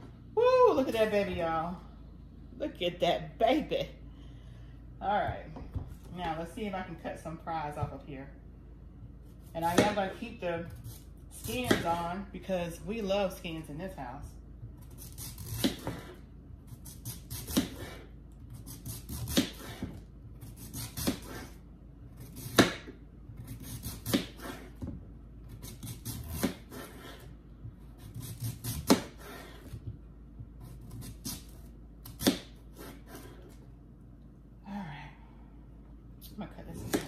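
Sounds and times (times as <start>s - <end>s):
knife chopping on cutting board: 9.7s - 10.2s, 15.4s - 16.2s, 18.7s - 21.5s, 22.3s - 24.9s, 25.6s - 27.2s, 28.0s - 29.9s, 30.6s - 33.4s, 36.8s - 37.0s.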